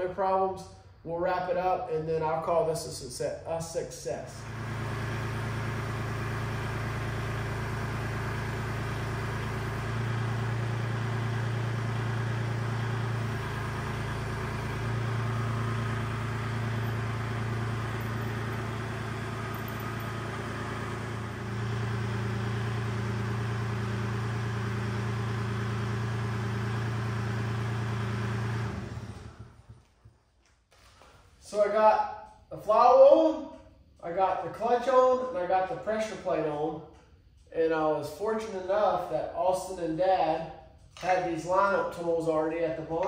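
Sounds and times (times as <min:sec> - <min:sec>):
tractor diesel engine running: 0:04.4 - 0:30.1.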